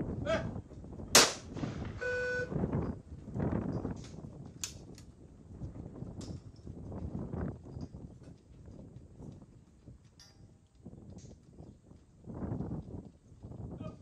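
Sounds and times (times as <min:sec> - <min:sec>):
shotgun shot: 0:01.1 - 0:02.0.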